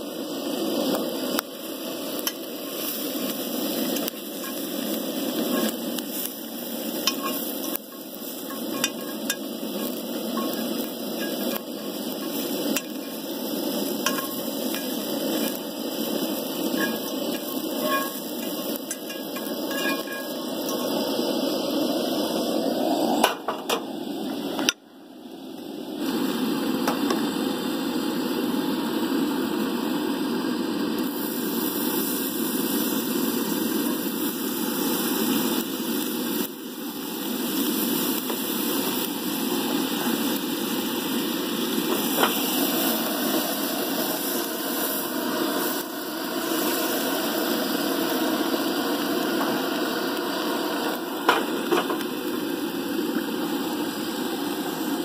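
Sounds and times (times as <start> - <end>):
gas burner hissing: 0.0 - 55.0
skillet clinking on grate: 3.7 - 6.3, 6.9 - 15.6, 16.6 - 21.0.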